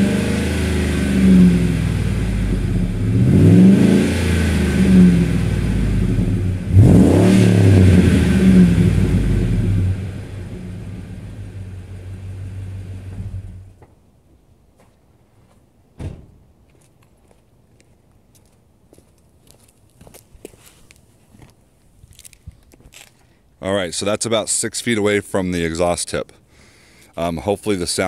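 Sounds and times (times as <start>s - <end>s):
car engine throttle blips: 0.0s - 13.8s.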